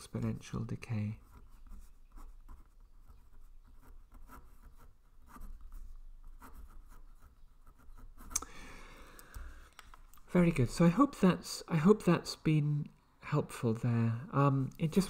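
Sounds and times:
pen scratching on paper: 1.1s - 8.4s.

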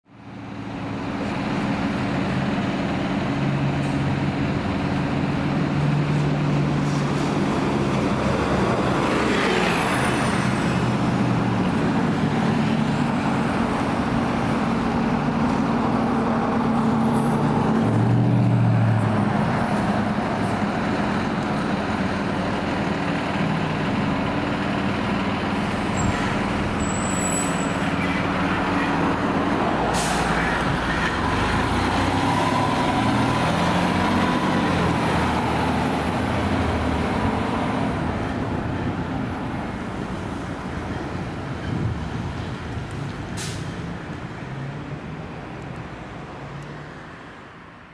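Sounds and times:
fire engine diesel engine: 0.0s - 47.9s
air brakes hissing: 29.8s - 30.5s, 43.3s - 43.8s.

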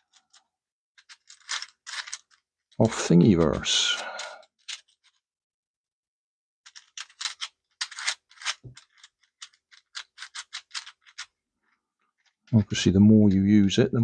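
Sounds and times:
plastic puzzle cube clicking: 1.0s - 2.4s, 6.7s - 11.4s.

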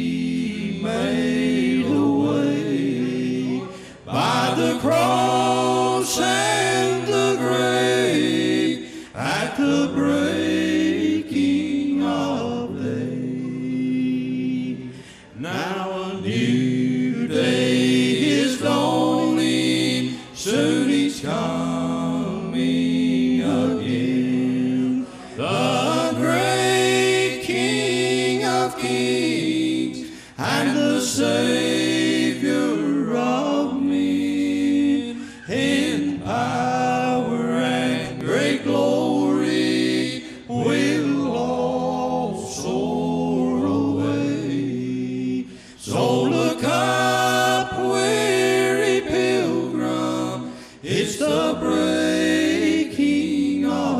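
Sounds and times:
men singing in close harmony: 0.0s - 53.9s.

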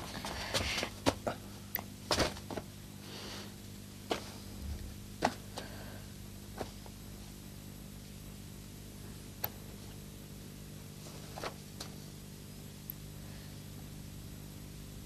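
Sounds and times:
footsteps on tiled floor: 0.0s - 1.3s
faint steady hum: 0.0s - 15.0s.

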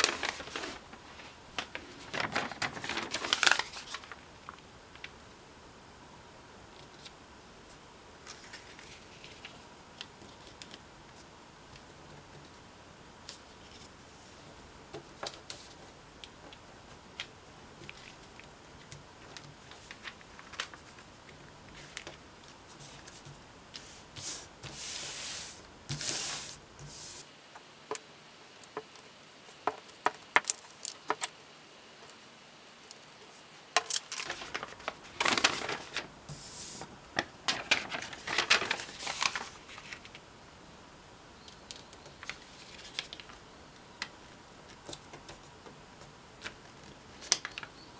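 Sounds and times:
paper rustling and sliding: 0.0s - 4.2s, 8.2s - 11.3s, 17.8s - 27.4s, 32.9s - 40.2s.

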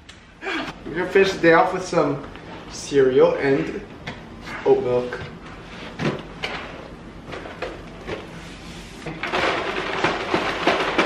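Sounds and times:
cardboard boxes knocking and clattering: 9.2s - 11.0s.

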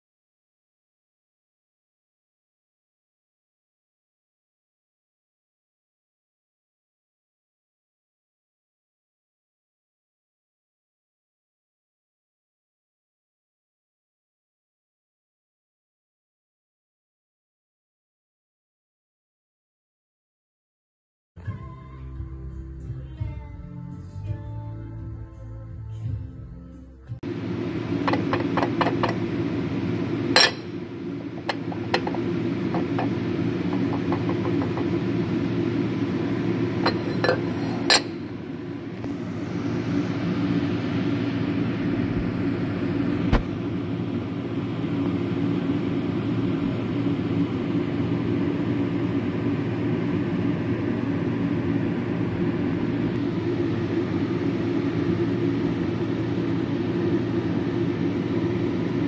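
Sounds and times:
planing machine droning: 27.3s - 38.1s.

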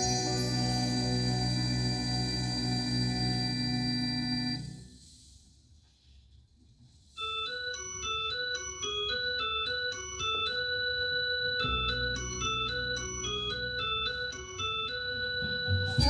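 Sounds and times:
repeating keyboard notes: 0.0s - 4.9s, 7.2s - 16.0s
deep bass line: 15.5s - 16.0s.

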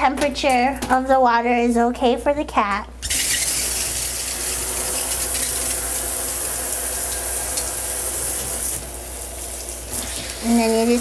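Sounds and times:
water running from sprayer: 3.0s - 11.0s.

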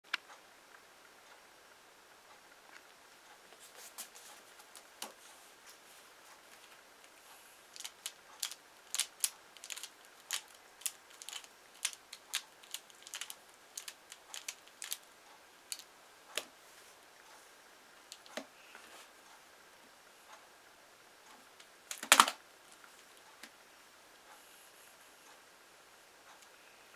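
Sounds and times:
plastic puzzle clicking: 7.7s - 15.1s, 15.7s - 16.5s, 21.9s - 22.4s.

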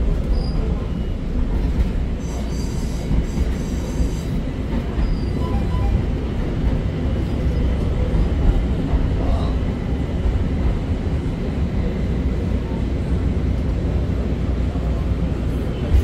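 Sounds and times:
rail car rumbling on track: 0.0s - 16.0s
wheel squeal: 5.0s - 6.0s.

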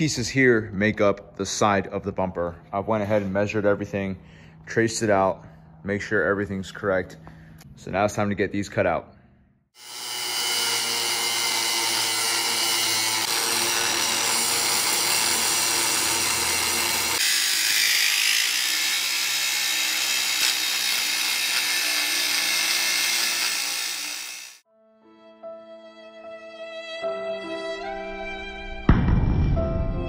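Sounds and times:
angle grinder cutting steel: 9.8s - 24.6s.

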